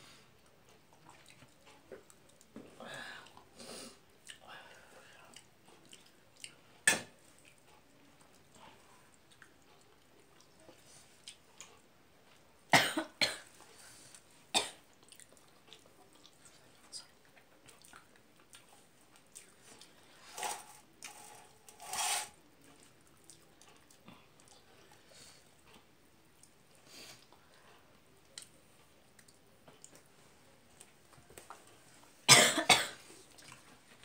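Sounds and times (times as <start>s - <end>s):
soft chewing: 0.1s - 12.7s, 13.4s - 21.7s, 22.4s - 32.3s, 33.0s - 34.0s
woman coughing: 12.8s - 13.4s, 32.3s - 33.0s.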